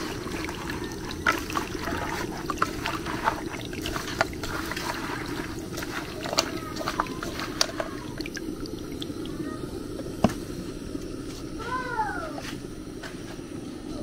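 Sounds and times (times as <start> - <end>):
small clicks and drips: 0.0 - 10.1
juice trickling through colander: 0.0 - 13.0.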